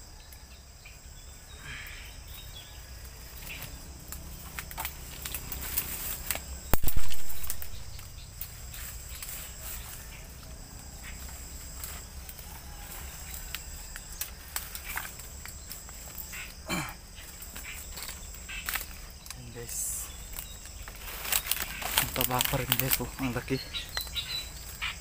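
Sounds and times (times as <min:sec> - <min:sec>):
high insect buzz: 0:00.0 - 0:25.0
twigs cracking: 0:02.2 - 0:25.0
footsteps crunching through dry leaves: 0:03.1 - 0:25.0.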